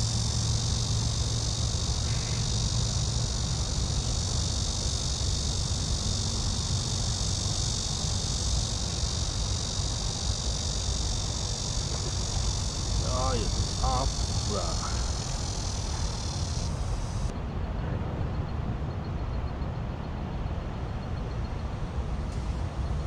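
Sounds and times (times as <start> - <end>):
insects chorus: 0.0 - 17.3
low steady rumble: 0.0 - 19.2.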